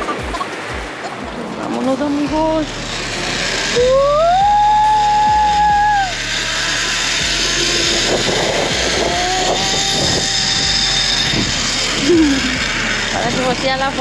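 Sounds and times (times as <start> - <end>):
held whine: 0.0 - 14.0
wind rushing on microphone: 7.8 - 13.6.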